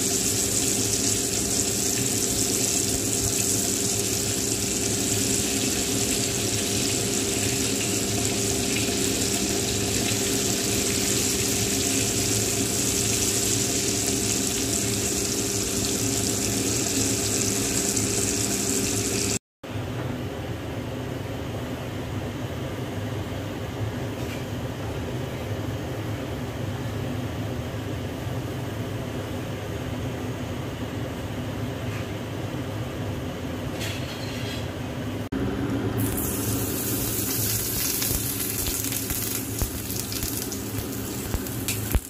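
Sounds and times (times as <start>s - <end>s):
chicken deep-frying sizzle: 0.0s - 19.4s, 35.8s - 42.0s.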